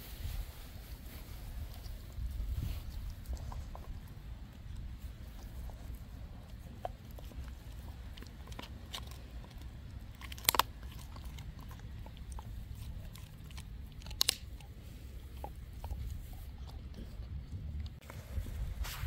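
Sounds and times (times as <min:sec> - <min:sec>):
dog chewing: 0:01.6 - 0:18.2
loud bone crunches: 0:06.5 - 0:17.0.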